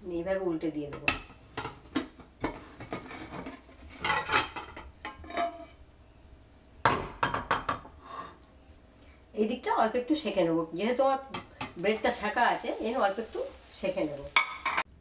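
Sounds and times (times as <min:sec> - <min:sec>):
frying pan knocking on plate: 0:06.8 - 0:07.9.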